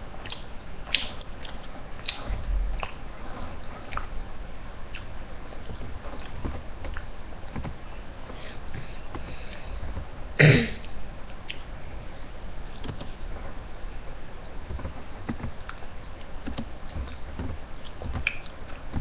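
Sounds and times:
boy chewing with mouth clicks: 0.2s - 4.2s, 4.9s - 7.7s, 10.8s - 11.7s, 14.7s - 19.0s
boy coughing: 10.4s - 10.8s.

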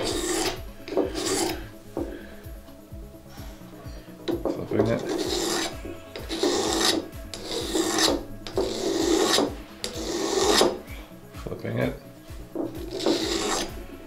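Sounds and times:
blade scraping on sharpening stone: 0.0s - 1.6s, 4.3s - 10.8s, 12.8s - 13.8s.

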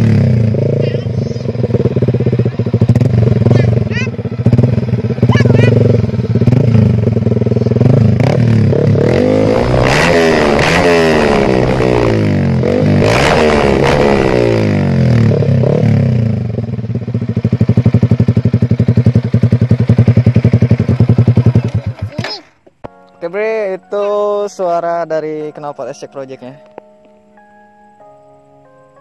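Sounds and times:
exhaust blatting: 0.0s - 16.6s
loud motorcycle engine revving: 0.0s - 22.2s.

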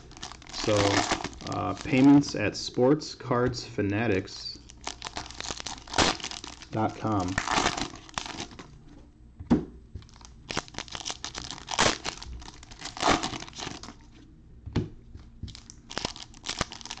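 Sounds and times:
foil wrappers crinkling and tearing: 0.0s - 2.5s, 4.6s - 8.7s, 10.0s - 14.1s, 15.5s - 17.0s.

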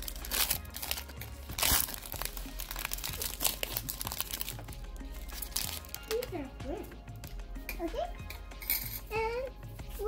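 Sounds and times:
foil wrapper crinkling: 0.0s - 6.3s.

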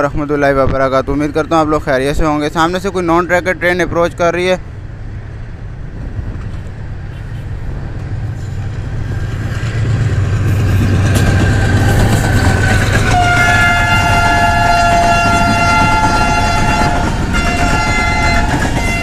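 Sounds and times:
diesel train passing: 0.0s - 19.0s
train horn: 11.4s - 19.0s.

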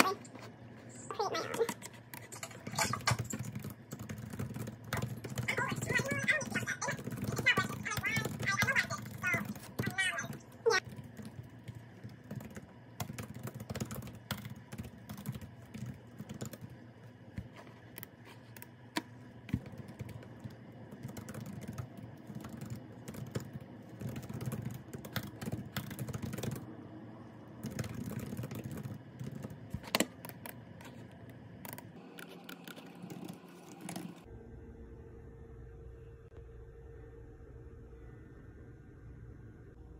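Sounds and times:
low steady hum: 0.0s - 39.9s
laptop keyboard typing: 1.4s - 26.7s, 27.6s - 34.3s.

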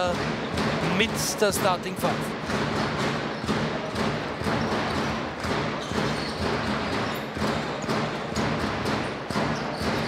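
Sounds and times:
basketball bouncing on hardwood: 0.0s - 1.3s, 2.2s - 10.0s.

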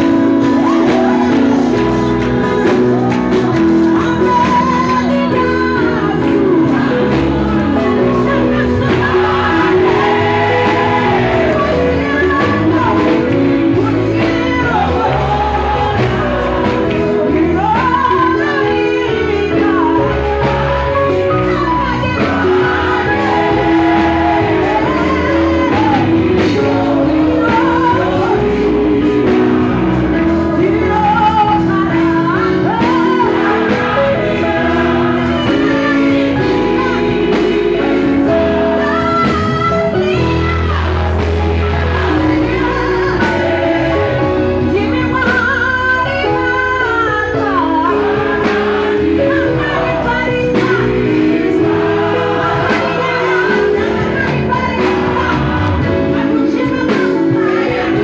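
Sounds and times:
choir singing gospel: 0.0s - 58.0s
instrumental backing music: 0.0s - 58.0s
woman singing lead: 0.0s - 58.0s.

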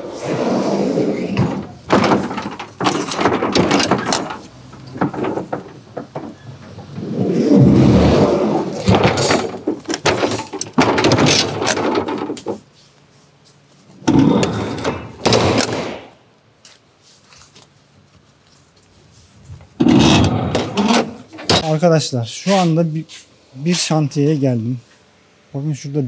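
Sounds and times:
truck doors clanking shut: 1.2s - 12.6s, 14.0s - 16.2s, 19.8s - 21.7s.

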